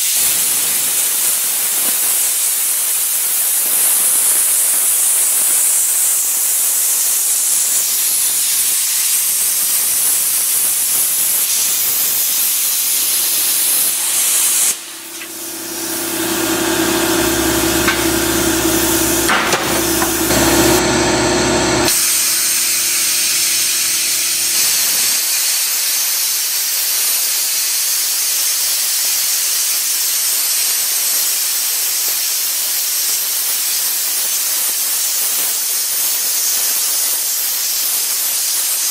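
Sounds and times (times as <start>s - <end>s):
plasma cutter arc hissing: 0.0s - 38.9s
steady low hum: 13.9s - 21.9s.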